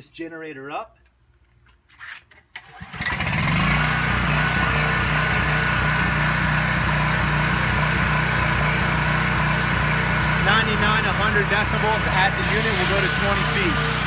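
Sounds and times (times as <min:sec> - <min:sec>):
generator engine running: 0:02.6 - 0:14.0.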